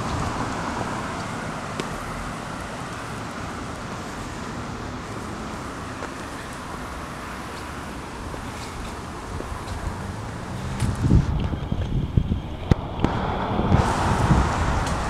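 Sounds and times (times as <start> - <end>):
passing cars hissing: 0.0 - 15.0.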